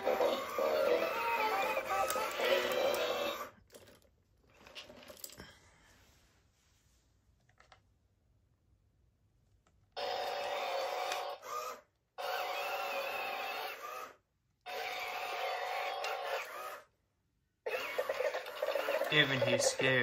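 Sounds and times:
toy robot electronic beeps: 17.7s - 19.9s.

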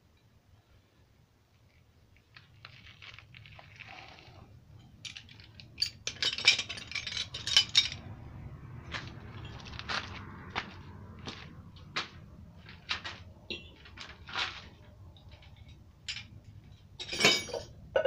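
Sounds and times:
metal tools clinking on concrete: 4.8s - 8.0s, 13.5s - 14.4s, 15.2s - 18.0s.

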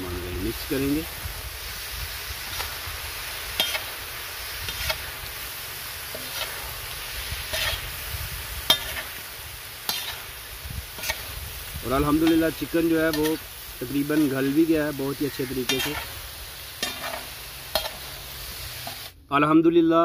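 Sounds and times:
food sizzling: 0.0s - 19.2s
metal spatula scraping griddle: 3.4s - 14.5s, 15.3s - 16.2s, 16.8s - 18.2s.

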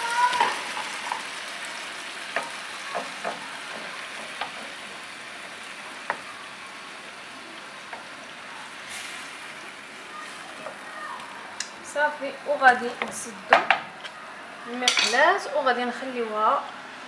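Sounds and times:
food sizzling in a frying pan: 0.0s - 16.4s.

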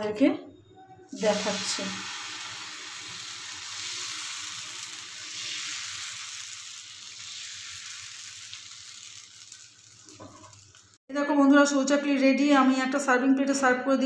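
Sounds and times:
batter sizzling on hot pan: 1.2s - 11.0s.

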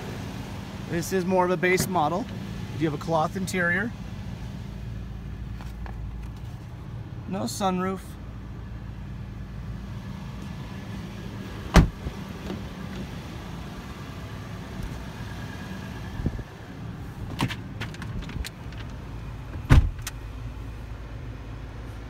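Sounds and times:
truck doors shutting: 11.6s - 13.1s, 17.2s - 20.2s.

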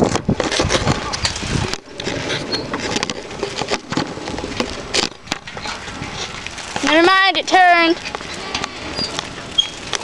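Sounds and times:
wind rushing on microphone: 0.0s - 3.1s
bicycle knocks and rattles: 0.0s - 10.0s.

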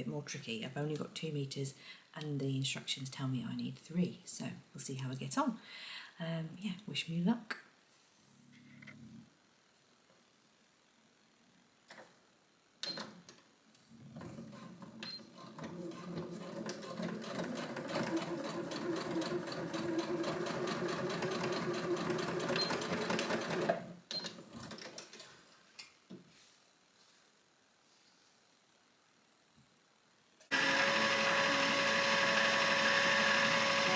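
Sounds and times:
sewing machine stitching: 14.2s - 25.3s, 30.5s - 33.9s.

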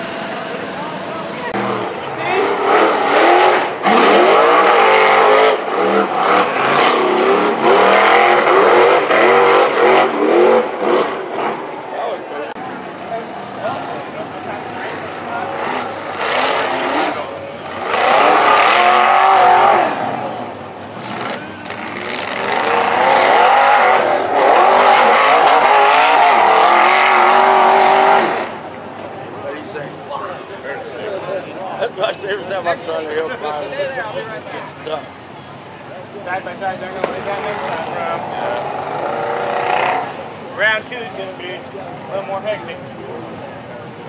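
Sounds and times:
buggy engine revving: 0.0s - 29.8s, 36.6s - 41.3s.

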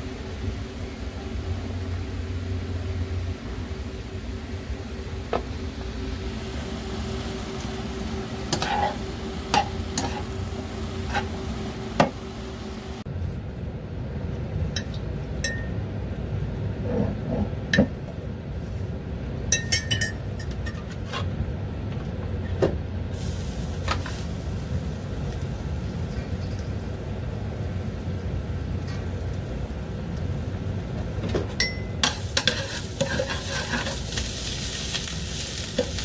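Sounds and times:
low background hum: 0.0s - 36.0s
utensils clinking on a frying pan: 8.5s - 10.3s, 14.7s - 15.8s, 19.5s - 20.9s, 31.6s - 36.0s.

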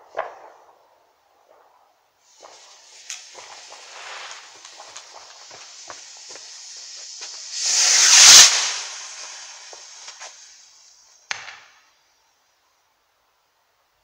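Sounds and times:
sharp firework crack: 0.0s - 11.9s
fuse fizzing crackles: 2.2s - 10.6s
firework launch whoosh: 2.3s - 11.5s.

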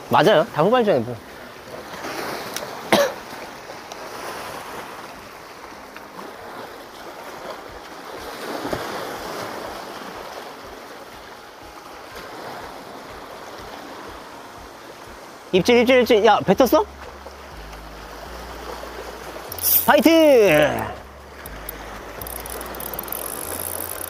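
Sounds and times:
waves breaking over rocks: 0.0s - 15.6s
sharp click: 21.4s - 24.0s.

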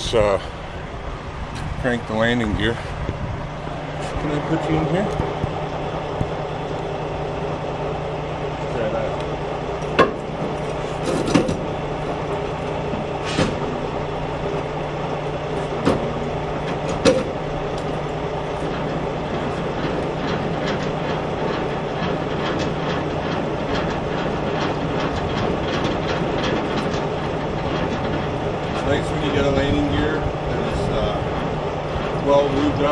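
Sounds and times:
steady low drone: 0.0s - 32.9s
crank handle rattling gearbox: 9.1s - 32.9s.

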